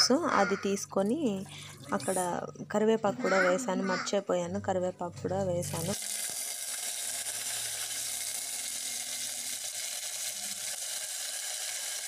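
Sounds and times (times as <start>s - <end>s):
spices sizzling in hot oil: 5.6s - 12.0s.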